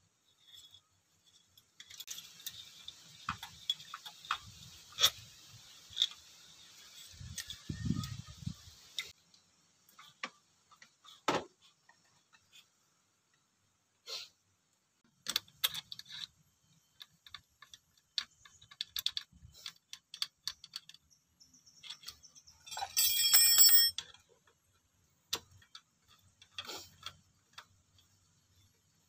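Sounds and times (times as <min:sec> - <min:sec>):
ringing metallic clink: 0:22.6 - 0:24.1.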